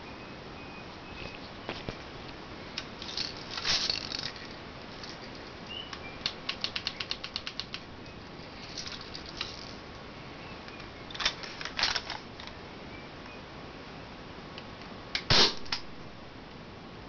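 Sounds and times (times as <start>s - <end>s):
plastic rustling: 2.9s - 5.6s, 8.4s - 9.8s
ratchet-like plastic clicks: 6.2s - 7.8s.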